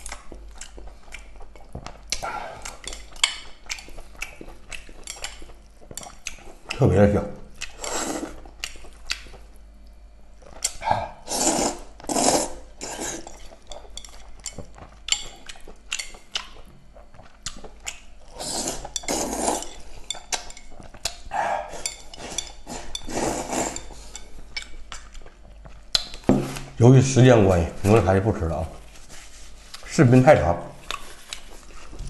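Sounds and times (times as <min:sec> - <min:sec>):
wet chewing clicks: 0:00.0 - 0:06.8, 0:07.5 - 0:10.8, 0:13.2 - 0:23.0, 0:23.8 - 0:26.2, 0:30.8 - 0:32.0
noodles slurping: 0:10.6 - 0:13.8, 0:17.5 - 0:24.2.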